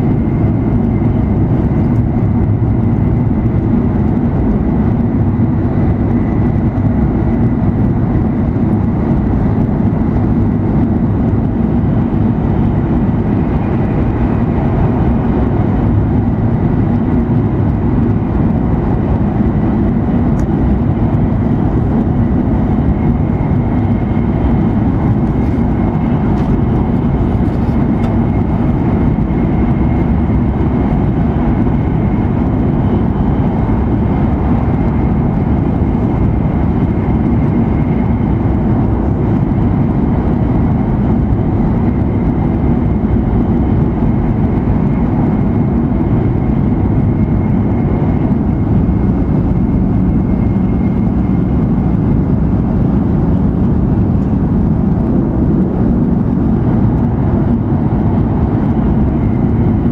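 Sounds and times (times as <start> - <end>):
train cabin rumble: 0.0 - 59.9.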